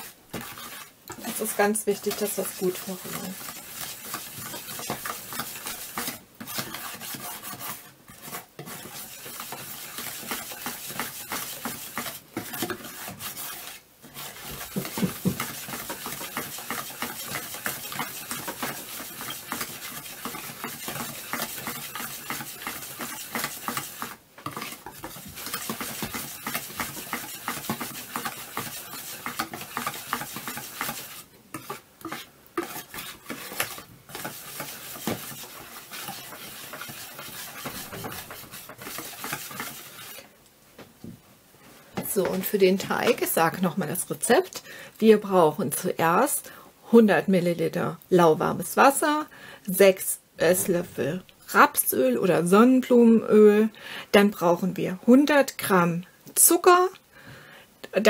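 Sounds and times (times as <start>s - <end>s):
whisk scraping and clicking in bowl: 0.0s - 40.3s.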